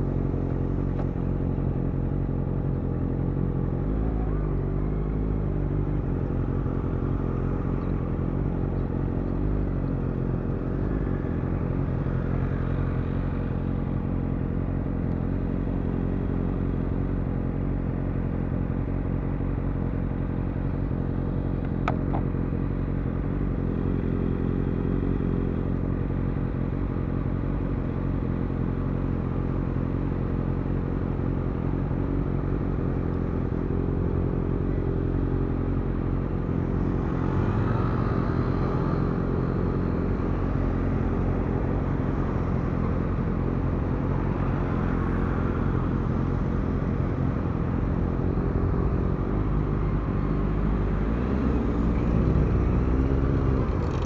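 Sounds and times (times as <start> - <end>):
traffic passing: 35.9 - 54.0.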